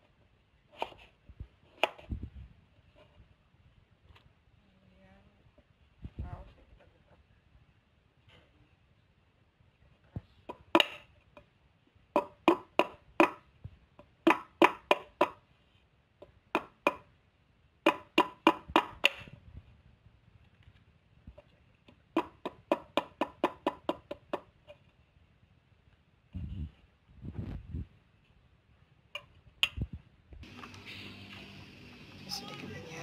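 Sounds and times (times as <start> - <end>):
knife chopping on wooden board: 14.3 - 15.4, 17.9 - 19.3.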